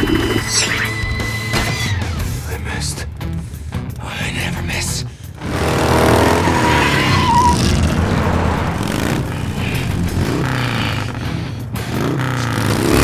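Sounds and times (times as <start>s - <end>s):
motorcycle engine revving: 5.4s - 13.0s
short high squeal: 6.4s - 7.8s.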